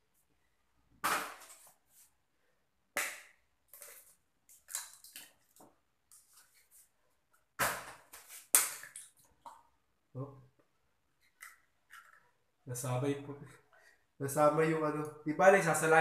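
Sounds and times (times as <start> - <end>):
liquid splashes and drips: 3.7 - 6.3, 8.4 - 9.7.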